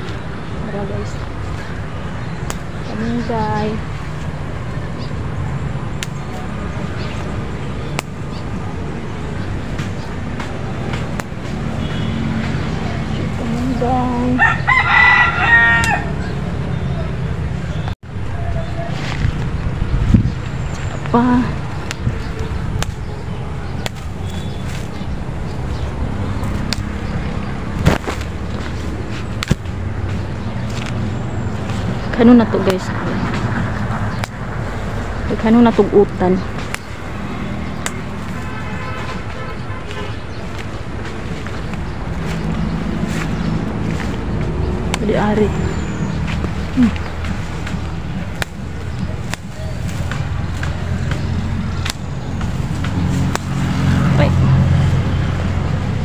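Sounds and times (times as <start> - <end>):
branches snapping: 2.4 - 2.8, 6.0 - 6.6, 7.9 - 8.4, 9.7 - 13.1, 14.4 - 16.0, 21.8 - 56.0
wind buffeting microphone: 17.4 - 56.0
branches clicking when pulled: 26.4 - 27.0, 27.7 - 31.0, 46.3 - 53.9
leaf rustling: 34.2 - 56.0.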